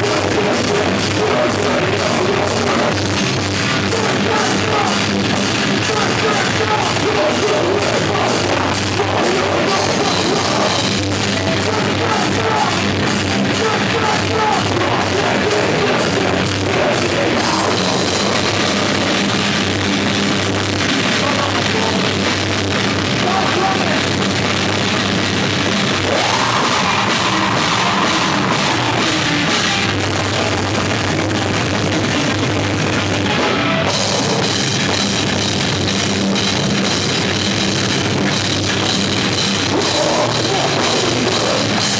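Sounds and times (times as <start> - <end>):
heavy metal band playing live: 0.0 - 41.9.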